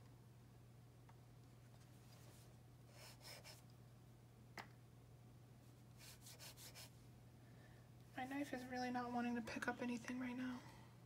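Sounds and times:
pen nib scratching paper: 0:06.0 - 0:06.9.

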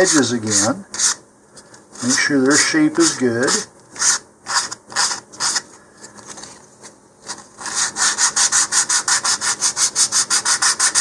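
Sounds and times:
sandpaper rubbing on wood: 0:02.0 - 0:05.6, 0:07.6 - 0:11.0.

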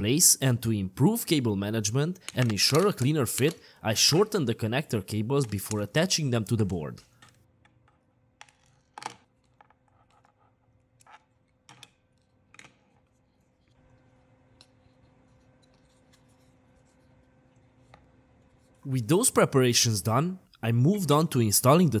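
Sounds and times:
plastic parts clicking and tapping: 0:02.2 - 0:03.7.

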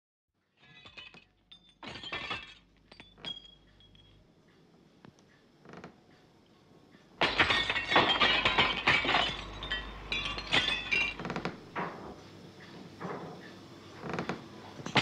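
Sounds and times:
glass breaking crash: 0:00.6 - 0:04.1, 0:07.2 - 0:11.8
glass clinks and rattles: 0:00.6 - 0:04.2, 0:07.2 - 0:12.0, 0:14.8 - 0:15.0.

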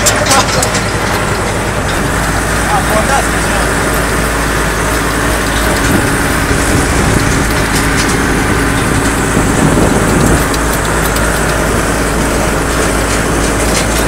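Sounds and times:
tractor diesel engine running: 0:00.0 - 0:14.0
light rattling ticks: 0:07.1 - 0:11.7.

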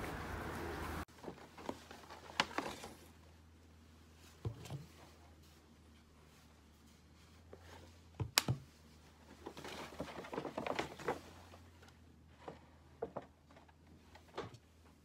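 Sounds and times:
paper rustling: 0:01.1 - 0:03.2.

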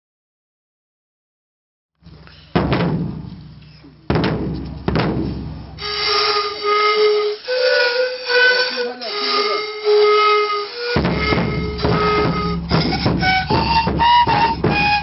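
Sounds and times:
deep drum strikes: 0:02.0 - 0:05.8, 0:11.0 - 0:15.0
flute-like melody: 0:05.8 - 0:15.0.

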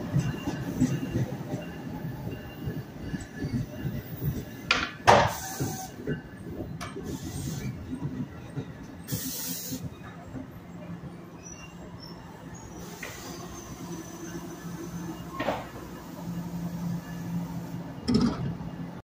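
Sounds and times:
air brake hiss: 0:05.3 - 0:05.9, 0:09.1 - 0:09.9, 0:12.8 - 0:13.5.

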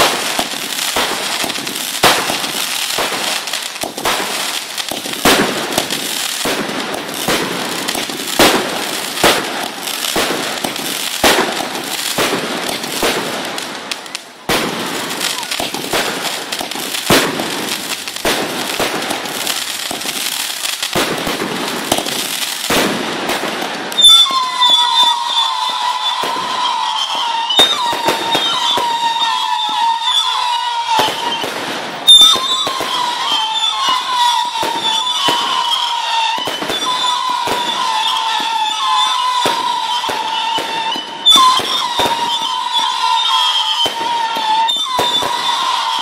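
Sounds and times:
loud firework bang: 0:00.0 - 0:13.4
firework pops: 0:00.0 - 0:25.2
fireworks crackling: 0:00.0 - 0:46.0
shrill firework whistling: 0:00.0 - 0:46.0.

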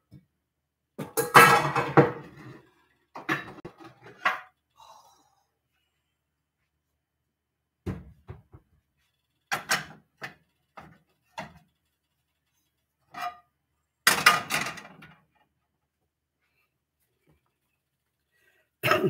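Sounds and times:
metal frying pans clattering: 0:01.0 - 0:02.6, 0:03.2 - 0:04.5, 0:14.1 - 0:15.2.

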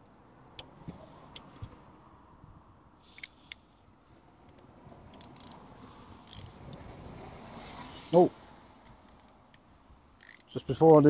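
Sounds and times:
hand tools clicking on metal: 0:10.2 - 0:11.0.

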